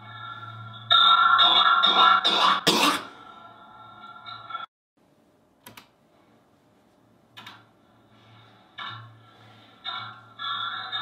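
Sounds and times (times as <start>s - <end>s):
distorted coughs: 1.9s - 3.2s.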